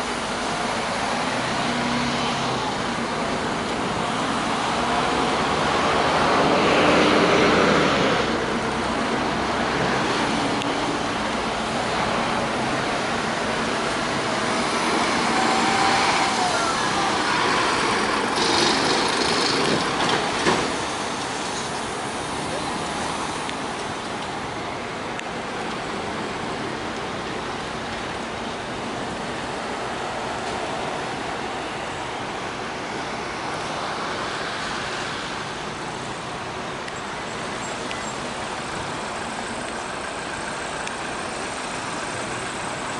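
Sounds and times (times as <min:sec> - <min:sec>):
bus engine running: 0:00.0 - 0:42.9
street traffic noise: 0:00.0 - 0:42.9.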